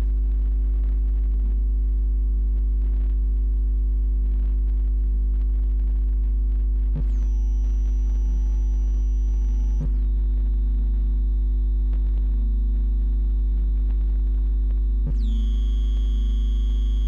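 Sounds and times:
deep steady hum: 0.0s - 17.0s
sustained sine tones: 5.9s - 17.0s.

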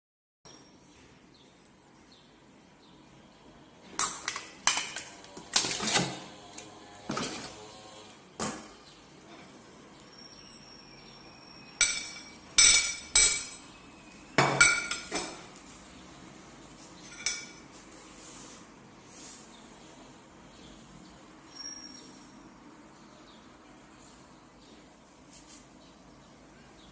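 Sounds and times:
steel pot clanking: 11.8s - 13.7s, 14.4s - 15.4s.

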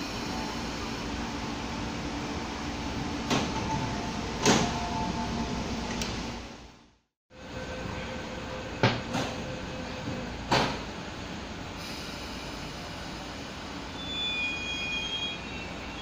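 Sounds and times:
train equipment humming: 0.0s - 6.8s.

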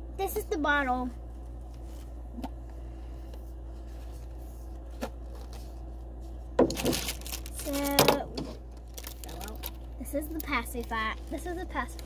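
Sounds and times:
steady low hum: 0.0s - 12.0s
items handled from a box: 6.6s - 12.0s.

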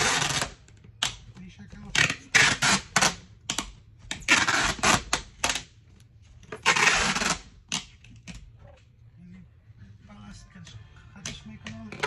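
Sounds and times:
packing tape ripping off roll: 0.0s - 0.6s, 4.1s - 5.7s, 6.6s - 7.9s.

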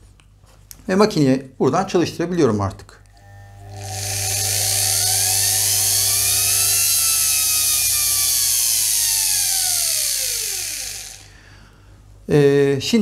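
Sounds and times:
electric motor whine: 3.1s - 11.4s.

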